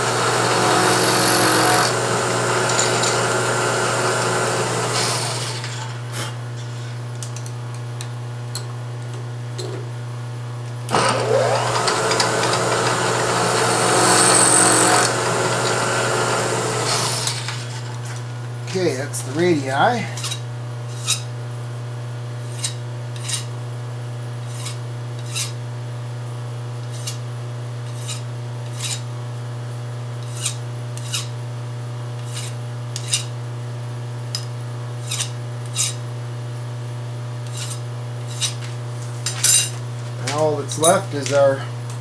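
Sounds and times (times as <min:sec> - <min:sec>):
steady low hum: 0:17.8 - 0:29.5
hand file rasping on metal: 0:22.5 - 0:23.5, 0:24.5 - 0:25.6, 0:27.9 - 0:29.1, 0:30.2 - 0:31.3, 0:32.2 - 0:33.3, 0:35.0 - 0:36.0, 0:37.5 - 0:38.6.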